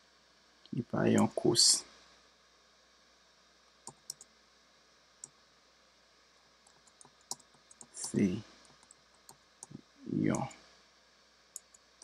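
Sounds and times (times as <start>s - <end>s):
computer mouse clicks: 3.8s - 4.3s, 6.6s - 9.8s, 11.6s - 11.9s.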